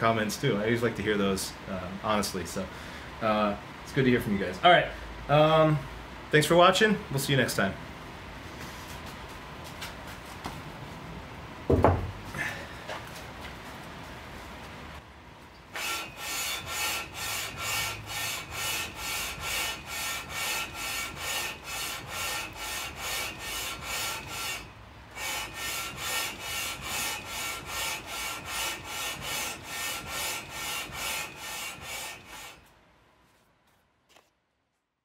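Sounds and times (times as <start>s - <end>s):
metal rasping on sandpaper: 15.8s - 32.6s.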